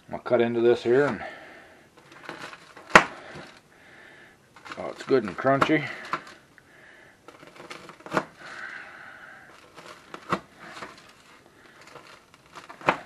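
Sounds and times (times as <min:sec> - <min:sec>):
knife crunching through bread crust: 0:07.3 - 0:08.9, 0:09.5 - 0:13.0.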